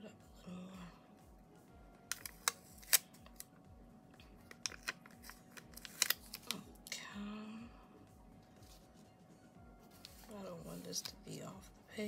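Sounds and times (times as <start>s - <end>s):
paper sticker crackling: 4.5s - 6.6s.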